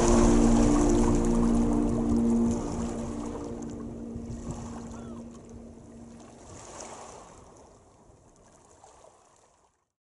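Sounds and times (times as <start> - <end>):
low steady hum: 0.0 - 8.0
small waves lapping on shore: 0.0 - 9.9.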